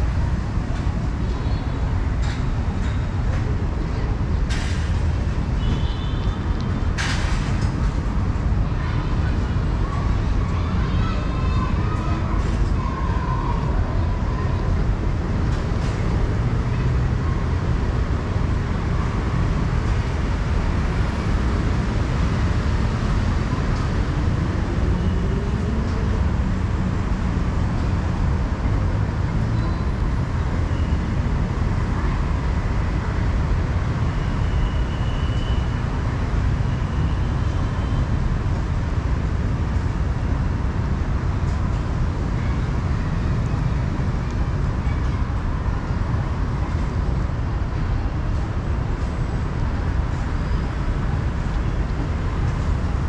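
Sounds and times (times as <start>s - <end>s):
road traffic rumble: 0.0s - 53.0s.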